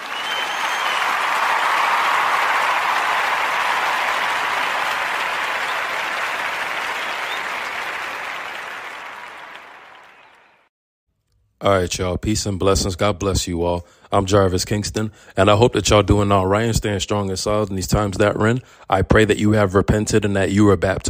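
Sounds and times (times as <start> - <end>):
crowd applause: 0.0 - 10.7.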